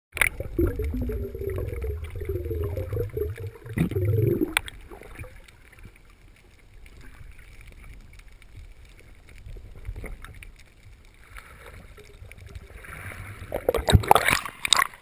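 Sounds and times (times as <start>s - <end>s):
underwater gurgle of moving water: 0.1s - 15.0s
faint steady water wash: 0.2s - 15.0s.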